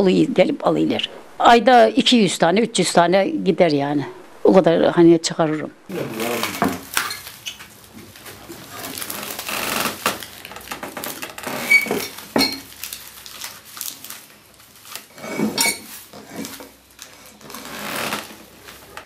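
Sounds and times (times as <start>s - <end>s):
broom straw rustling and crackling: 5.9s - 19.0s.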